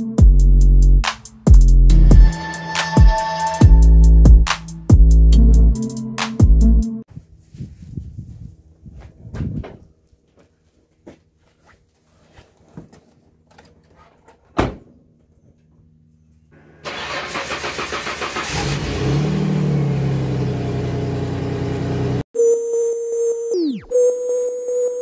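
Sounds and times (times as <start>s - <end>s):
engine cranking and idling: 16.6s - 22.2s.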